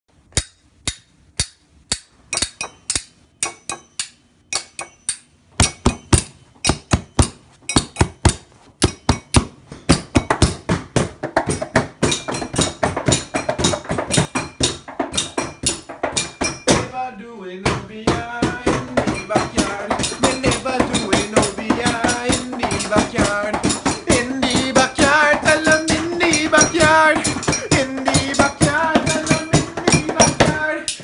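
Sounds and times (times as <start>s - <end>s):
spoon striking drinking glass: 0.4s - 9.4s.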